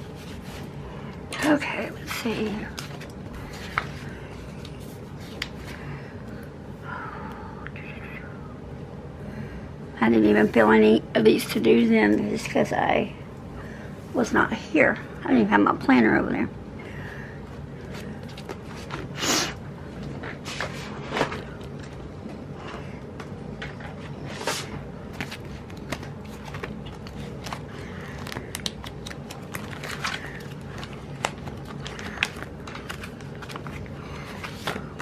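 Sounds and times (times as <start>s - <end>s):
low steady hum: 0.0s - 35.0s
paper rustling and crackling: 2.0s - 5.8s, 17.8s - 19.2s, 23.6s - 35.0s.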